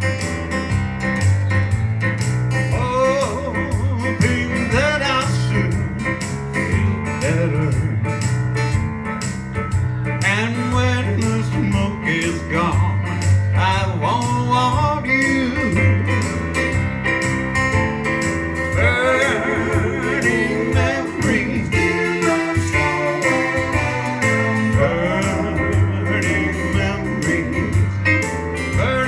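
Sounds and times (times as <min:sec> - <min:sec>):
acoustic-electric guitar: 0:00.0 - 0:29.0
stage piano: 0:00.0 - 0:29.0
man singing: 0:02.7 - 0:08.3, 0:10.2 - 0:16.4, 0:18.7 - 0:29.0.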